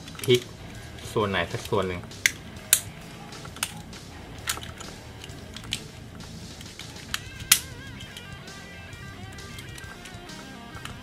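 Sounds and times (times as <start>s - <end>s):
plastic toy parts clicking: 0.0s - 0.5s, 1.5s - 3.8s, 4.4s - 5.9s, 6.6s - 8.3s, 9.2s - 11.0s.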